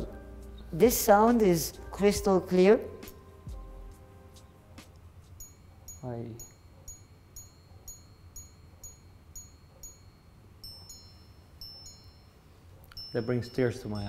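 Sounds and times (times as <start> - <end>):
wristwatch chiming on gongs: 5.4 - 14.0.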